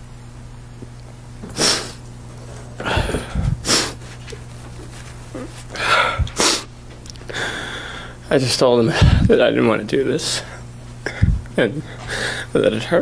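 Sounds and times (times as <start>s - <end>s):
steady low hum: 0.0s - 13.0s
man sobbing and sniffing: 1.5s - 4.2s, 5.3s - 6.7s
microphone thumps: 2.8s - 5.2s.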